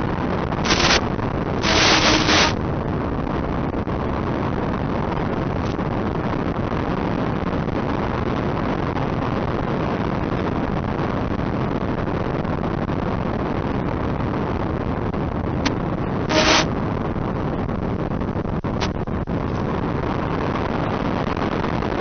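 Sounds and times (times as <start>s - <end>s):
rushing wind from model plane: 0.0s - 8.0s.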